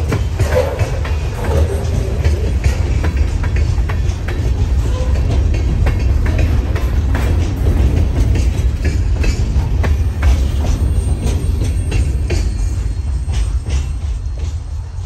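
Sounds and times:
freight car wheels rumbling and clicking: 0.0 - 15.0.

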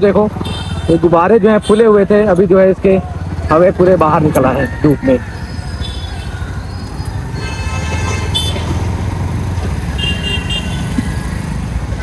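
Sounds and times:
low rumble of engine and wind: 0.0 - 12.0
vehicle horn toots: 7.4 - 8.8, 9.9 - 10.9.

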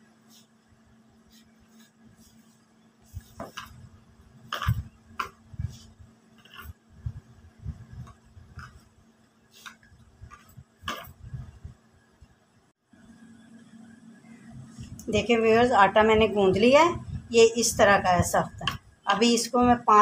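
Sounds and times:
hand kneading dough in bowl: 1.2 - 11.8.

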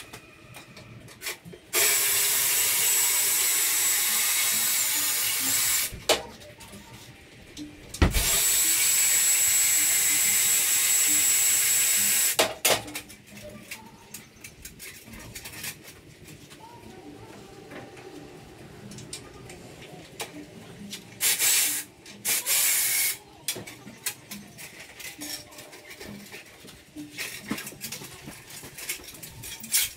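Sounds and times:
power drill whining: 1.8 - 5.9, 8.1 - 12.4.

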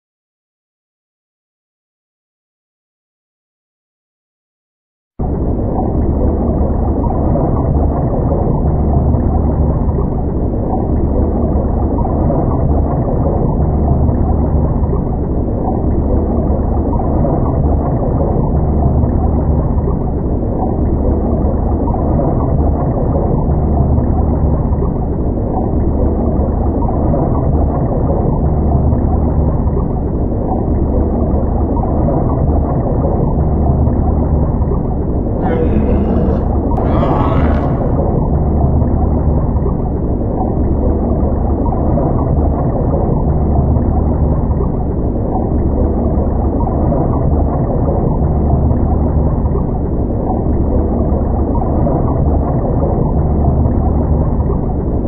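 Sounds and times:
muffled underwater rumble: 5.2 - 55.0.

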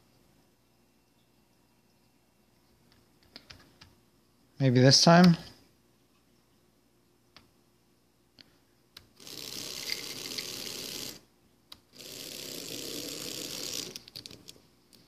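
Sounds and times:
stepper motor buzzing: 9.2 - 11.2, 12.0 - 14.0.

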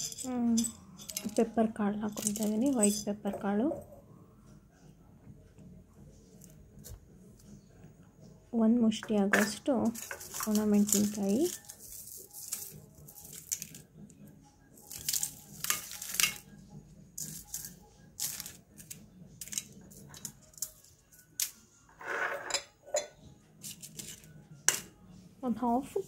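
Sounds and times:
bowls clinking: 0.0 - 1.5, 2.1 - 3.9, 9.1 - 13.8, 22.0 - 23.2
dried chillies rustling: 9.4 - 13.9, 14.8 - 16.5, 17.2 - 21.5.

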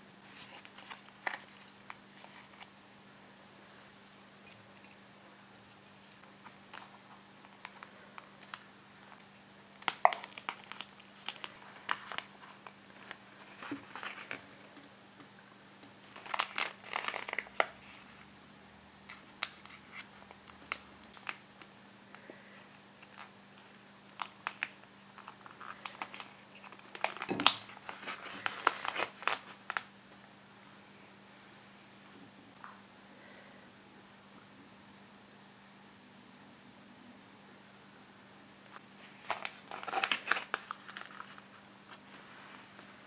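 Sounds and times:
faint steady hum: 0.0 - 43.0
plastic molds crinkling: 5.7 - 14.8, 16.0 - 18.3, 23.0 - 29.9, 38.7 - 42.8.

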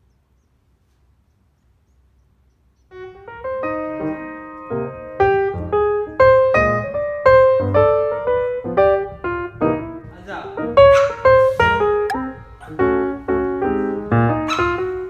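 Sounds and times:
piano music: 2.9 - 15.0.

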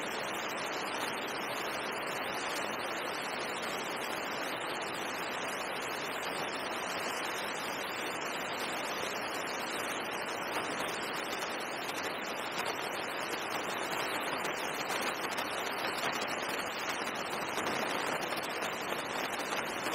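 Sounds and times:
steady static hiss: 0.0 - 19.9.

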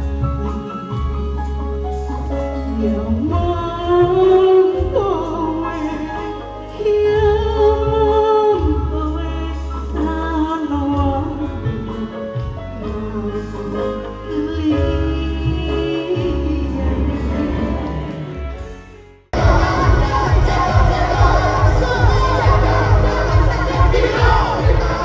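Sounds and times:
live band music: 0.0 - 25.0
steady bass line: 14.8 - 25.0.

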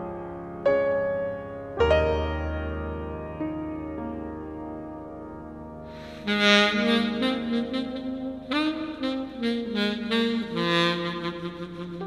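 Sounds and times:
saxophone melody: 5.9 - 12.0.

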